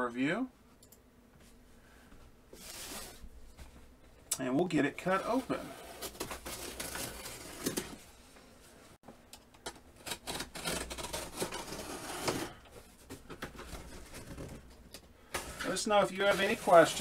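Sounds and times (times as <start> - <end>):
cardboard rustling: 2.5 - 3.8, 5.0 - 8.1, 9.8 - 17.0
cardboard box being cut open: 5.2 - 8.0, 10.0 - 12.6.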